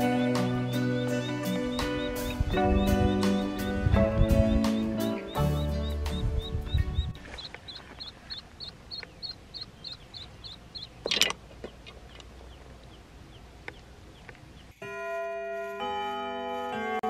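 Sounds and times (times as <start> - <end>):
background music: 0.0 - 7.2, 14.8 - 17.0
waterfowl chick peeping: 0.0 - 14.8.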